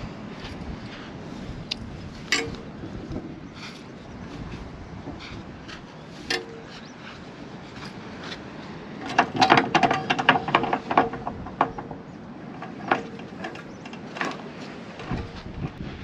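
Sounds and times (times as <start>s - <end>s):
metal staircase clanking: 2.3s - 3.4s, 6.2s - 6.8s, 8.9s - 15.4s.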